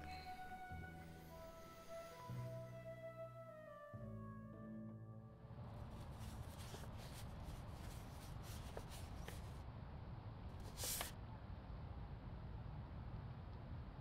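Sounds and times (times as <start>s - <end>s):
low steady hum: 0.0s - 14.0s
paper and packaging rustling: 5.9s - 9.6s, 10.6s - 11.1s.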